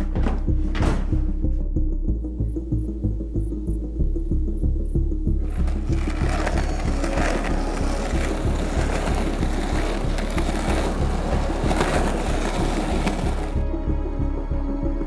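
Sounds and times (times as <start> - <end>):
music with bass pulse: 0.0 - 15.0
skateboard wheels rolling on asphalt: 5.4 - 13.6.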